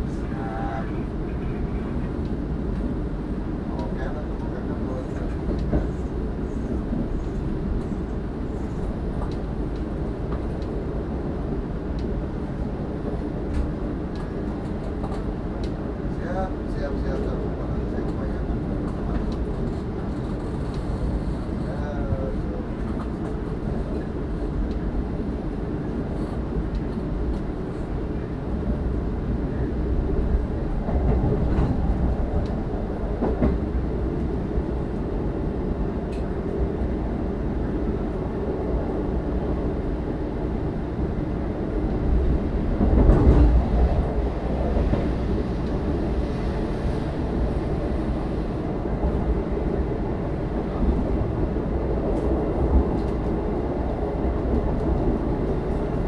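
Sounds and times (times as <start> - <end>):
train rumbling on rails: 0.0 - 56.0
faint rail clicks: 5.2 - 6.0, 9.2 - 10.8, 13.5 - 15.8, 18.0 - 21.8, 22.8 - 24.8, 36.0 - 36.4, 52.9 - 53.4.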